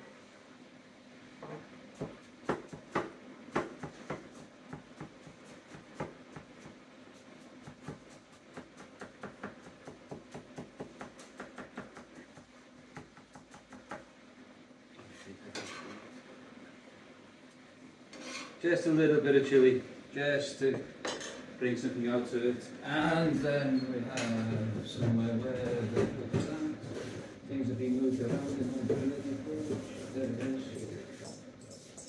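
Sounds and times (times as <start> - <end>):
knife scraping board: 18.1 - 18.6.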